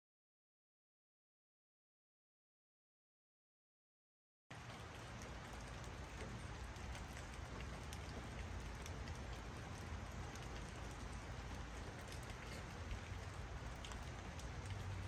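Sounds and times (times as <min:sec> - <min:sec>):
faint ticks: 0:04.7 - 0:15.0.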